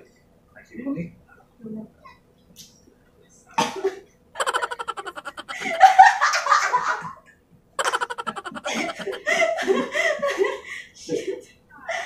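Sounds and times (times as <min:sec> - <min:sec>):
people laughing hard: 0:04.4 - 0:06.7, 0:07.8 - 0:09.4.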